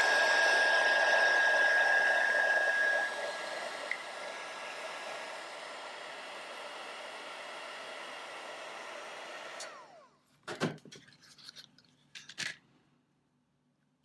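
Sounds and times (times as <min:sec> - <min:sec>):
fan winding down whine: 0:00.0 - 0:10.1
heat gun blowing: 0:00.0 - 0:10.1.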